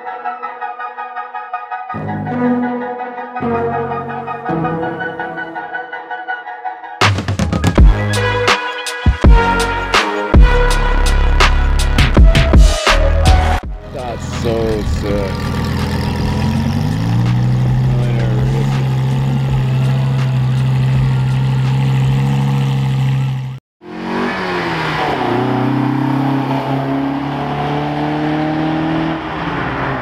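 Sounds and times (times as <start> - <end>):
sports car engine at low revs: 14.0 - 23.6
second car engine pulling away: 14.0 - 30.0.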